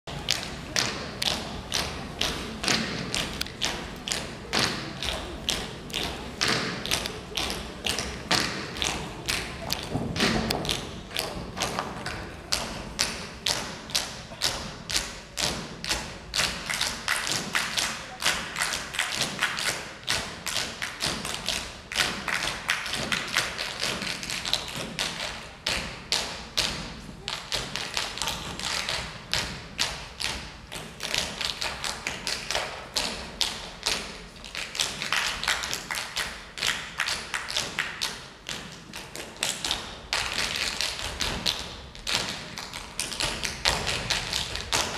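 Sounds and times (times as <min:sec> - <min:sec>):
dance taps and thumps: 0:38.5 - 0:44.9.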